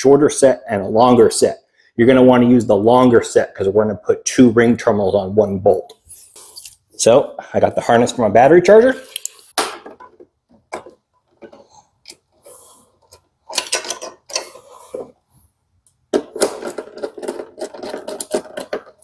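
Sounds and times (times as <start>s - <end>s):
small clicks and scrapes: 10.8s - 19.0s.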